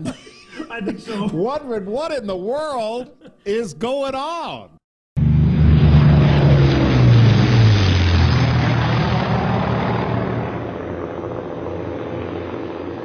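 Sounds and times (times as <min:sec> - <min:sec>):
propeller airplane flying past: 0:05.2 - 0:13.0.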